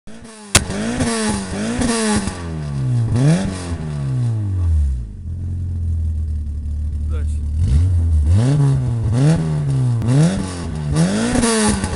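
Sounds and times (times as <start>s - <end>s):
car engine revving: 0.1s - 11.9s
exhaust crack and pops: 0.5s - 2.5s.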